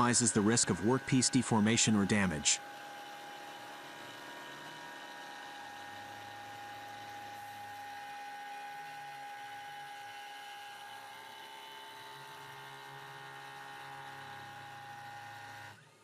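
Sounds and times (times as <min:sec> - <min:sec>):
milling spindle whine: 0:00.0 - 0:16.0.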